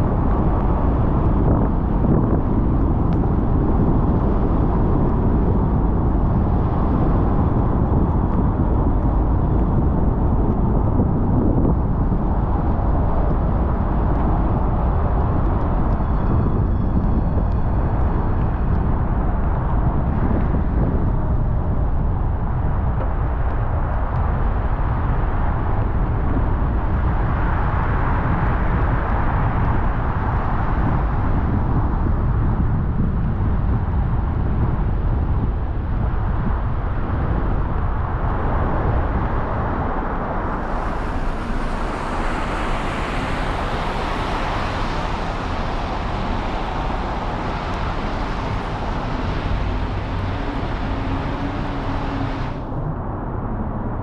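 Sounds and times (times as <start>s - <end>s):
tyre and road noise: 0.0s - 53.7s
high hiss: 40.4s - 52.6s.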